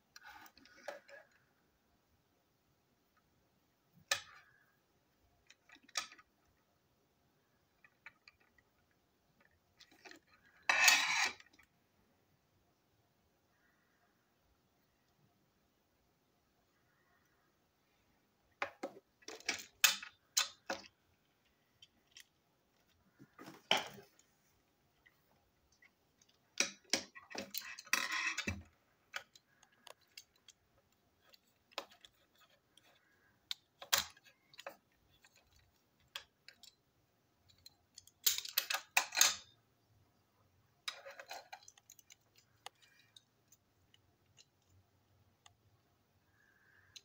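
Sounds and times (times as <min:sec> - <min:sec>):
small parts clicking and clattering: 0:00.1 - 0:01.6, 0:04.0 - 0:06.7, 0:07.4 - 0:11.8, 0:16.8 - 0:24.3, 0:24.9 - 0:39.9, 0:40.8 - 0:47.0.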